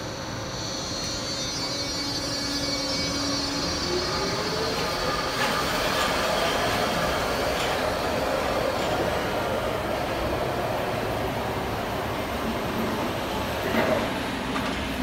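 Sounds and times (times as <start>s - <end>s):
wheel and rail noise: 0.0s - 15.0s.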